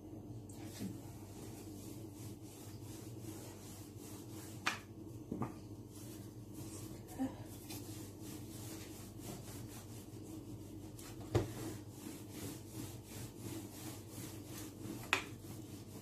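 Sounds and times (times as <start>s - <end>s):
rolling pin rubbing on dough: 0.6s - 16.0s.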